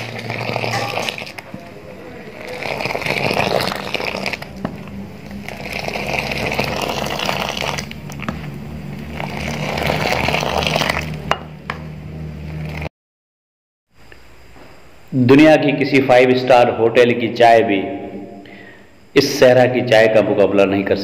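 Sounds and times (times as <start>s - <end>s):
tea pouring and splashing: 0.0s - 1.5s, 2.4s - 4.5s, 5.4s - 8.2s.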